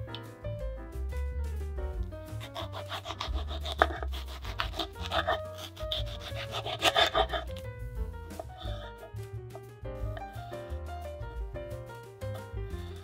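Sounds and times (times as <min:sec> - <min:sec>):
background music: 0:00.0 - 0:13.0
knife sawing through tomato: 0:02.3 - 0:07.6, 0:08.4 - 0:09.1
blade scraping cutting board: 0:02.3 - 0:07.7, 0:08.4 - 0:09.1.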